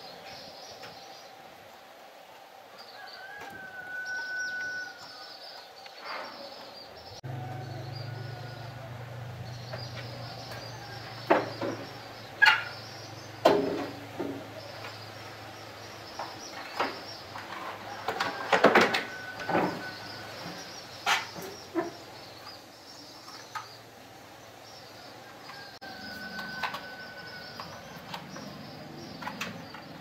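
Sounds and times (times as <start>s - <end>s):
high steady hiss: 0.0s - 30.0s
birds chirping: 2.7s - 30.0s
sharp knocks: 11.2s - 12.7s, 13.4s - 14.5s.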